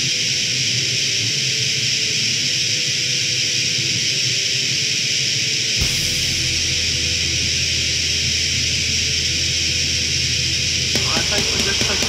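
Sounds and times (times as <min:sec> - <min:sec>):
steady hiss: 0:01.8 - 0:09.2
quiet guitar: 0:05.7 - 0:12.0.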